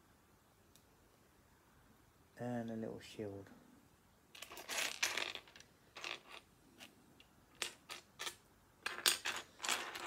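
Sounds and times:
plastic pieces clicking and rattling: 4.4s - 6.9s, 7.5s - 10.0s.

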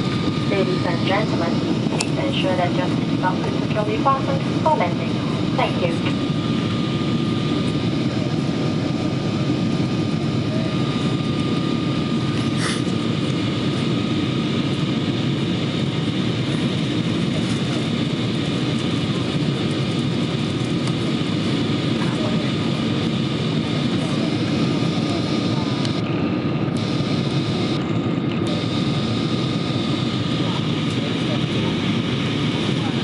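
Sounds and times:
thin constant whine: 0.0s - 15.0s
airplane cabin airflow and engines: 0.0s - 33.0s.

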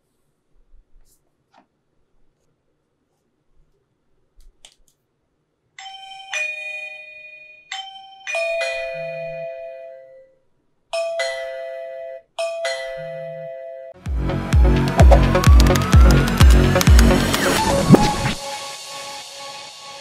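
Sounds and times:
two-note doorbell chime: 5.8s - 10.4s, 11.0s - 14.0s.

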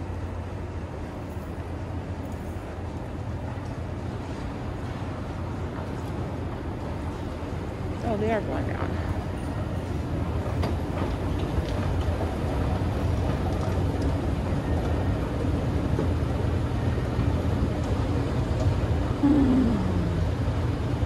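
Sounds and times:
escalator rumble and hum: 0.0s - 21.0s
falling voice-like sound: 19.2s - 20.5s.

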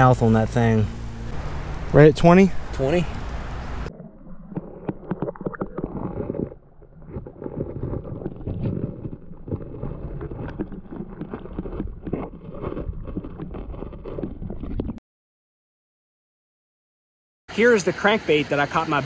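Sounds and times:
underwater creek gurgling: 0.0s - 15.0s
small underwater crackles and knocks: 3.3s - 15.0s.

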